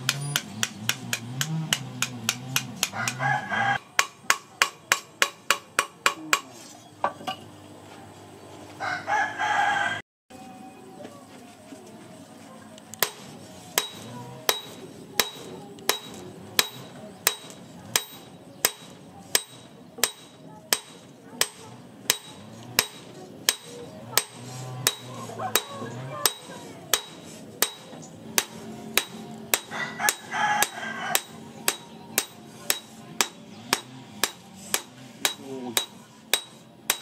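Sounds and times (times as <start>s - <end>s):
hammer blows on metal anvil: 13.8s - 37.0s.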